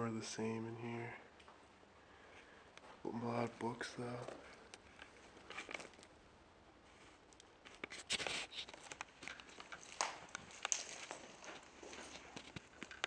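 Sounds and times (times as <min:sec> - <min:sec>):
footsteps on littered carpet: 0:08.0 - 0:13.0.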